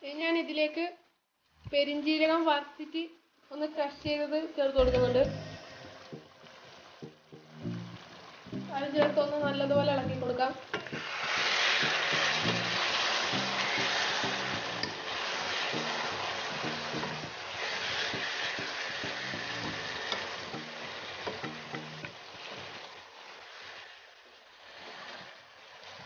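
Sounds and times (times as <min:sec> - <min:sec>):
meat sizzling in a pan: 0:10.4 - 0:26.0
wooden spatula scraping a pan: 0:10.8 - 0:21.4.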